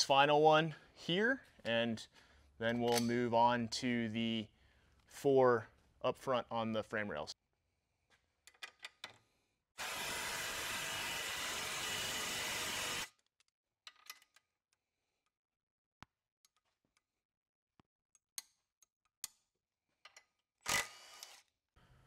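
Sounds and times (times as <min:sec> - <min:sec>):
cordless impact tool running: 0:09.8 - 0:13.1.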